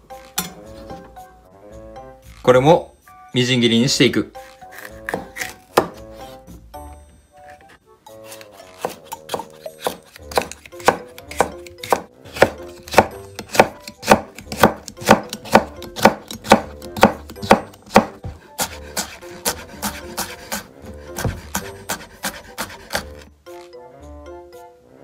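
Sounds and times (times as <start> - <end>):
knife chopping on plastic board: 4.7 - 6.3, 8.2 - 23.3.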